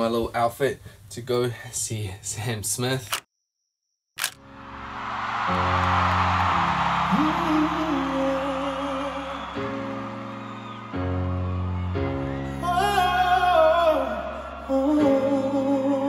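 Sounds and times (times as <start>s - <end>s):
person singing with vibrato: 7.1s - 9.5s, 12.5s - 16.0s.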